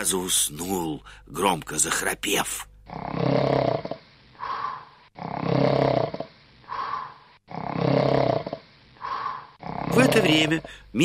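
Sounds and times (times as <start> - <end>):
wolf snoring: 2.9 - 10.6.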